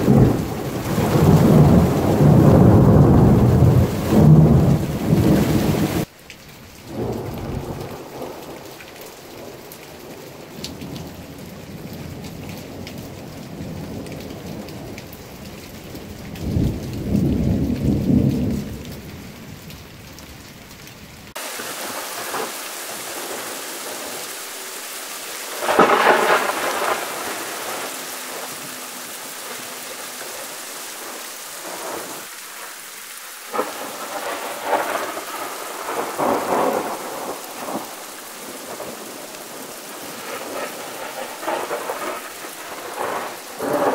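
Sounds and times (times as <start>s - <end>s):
thunder rumbling: 0.0s - 6.1s, 6.9s - 8.6s, 15.8s - 19.6s, 21.3s - 32.7s, 33.4s - 43.9s
rain falling: 0.0s - 43.9s
sharp thunder peal: 25.4s - 30.4s, 40.1s - 43.9s.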